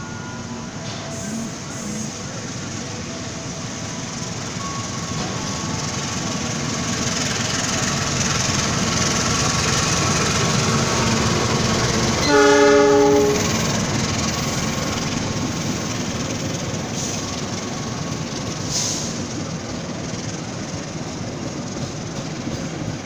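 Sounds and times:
locomotive engine and wheel noise: 0.0 - 23.0
train horn: 12.2 - 13.7.

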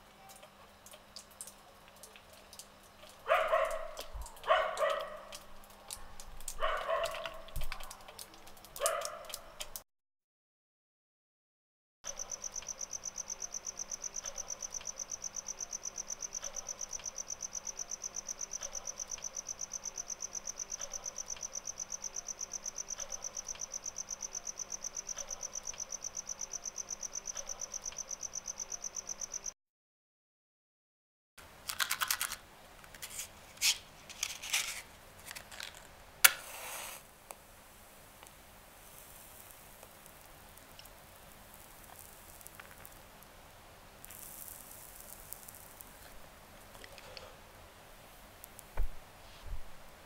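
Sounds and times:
cricket chirping: 12.1 - 29.6.

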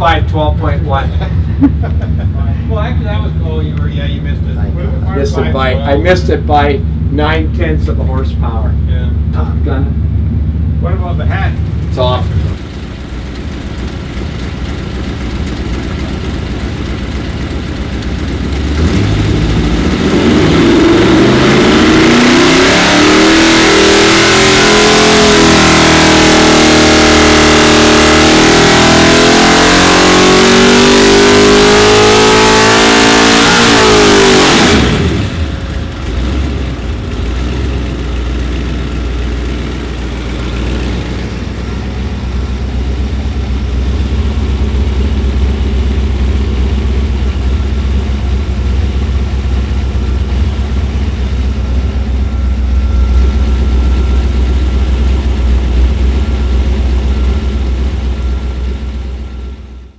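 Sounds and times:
engine idling rumble: 0.0 - 21.8, 34.8 - 59.9
engine revving at full throttle: 17.9 - 58.3.

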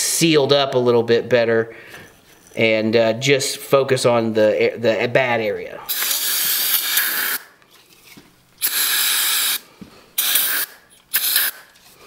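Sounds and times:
aerosol spray hissing: 5.9 - 7.5, 8.6 - 11.7.

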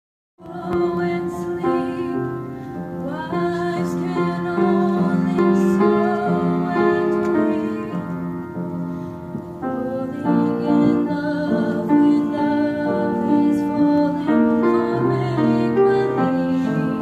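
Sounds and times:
young woman singing with vibrato: 0.4 - 8.2, 9.7 - 17.0
piano: 0.4 - 17.0.

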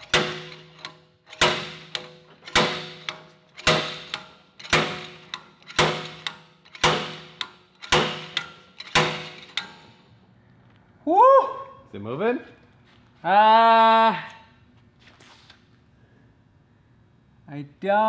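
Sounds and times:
slide hammer metallic clank: 0.0 - 10.0.

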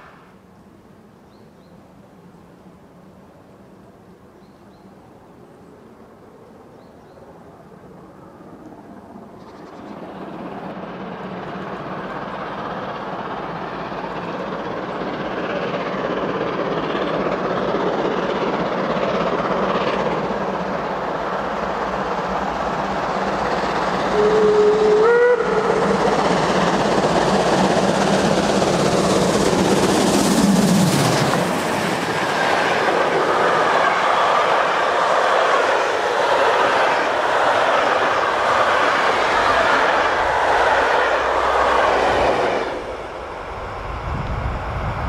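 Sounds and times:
steam locomotive rumble: 7.8 - 45.0
train whistle blast: 24.1 - 26.0.

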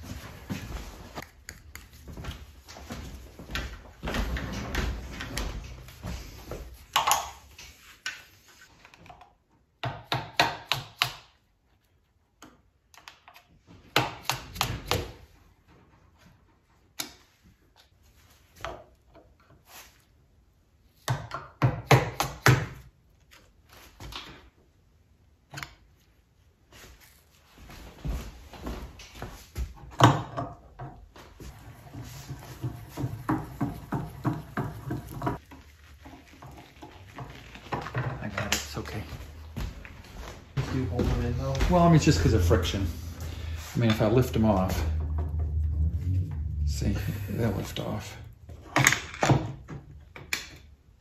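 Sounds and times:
rustling and handling noise: 0.0 - 9.7, 25.8 - 29.9, 31.1 - 49.2.

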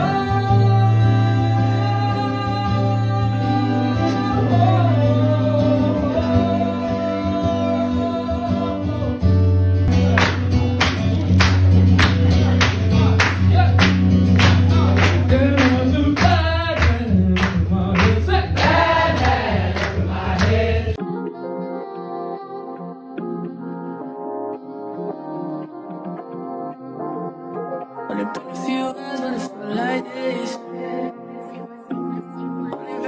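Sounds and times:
person singing: 0.0 - 9.4, 25.5 - 33.0
bass line: 0.0 - 21.0
guitar: 0.0 - 33.0.

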